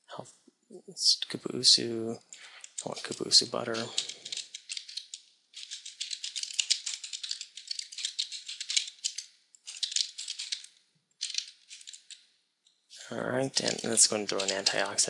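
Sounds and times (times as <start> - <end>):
fast typing on computer keyboard: 2.5 - 12.2, 13.5 - 15.0.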